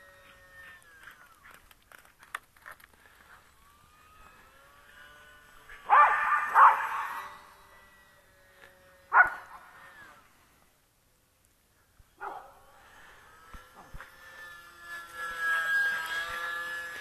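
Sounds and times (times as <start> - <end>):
electric motor whine: 0.0 - 11.1, 12.0 - 17.0
dogs barking: 5.8 - 7.4, 9.1 - 9.6, 12.2 - 12.6.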